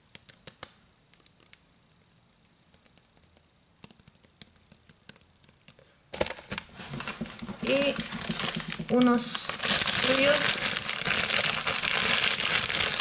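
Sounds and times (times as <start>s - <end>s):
plastic packaging crinkling: 6.2s - 13.0s.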